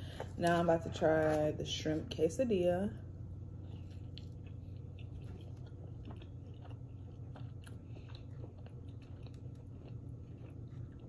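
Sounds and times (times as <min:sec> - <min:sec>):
person chewing food: 0:03.4 - 0:11.0.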